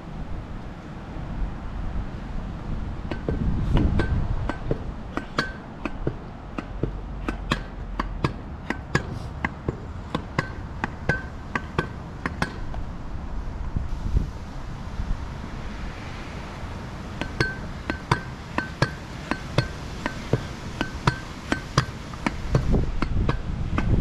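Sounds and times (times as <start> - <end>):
wind rumble on microphone: 0.0 - 24.0
pogo stick bouncing on pavement: 3.0 - 12.8, 17.2 - 24.0.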